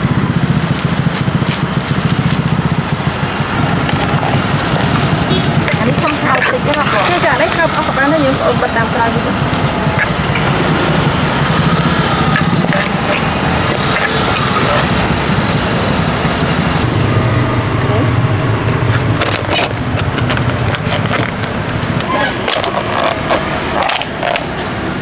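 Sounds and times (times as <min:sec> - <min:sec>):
motor traffic: 0:00.0 - 0:25.0
people talking: 0:05.6 - 0:10.5, 0:12.4 - 0:18.4.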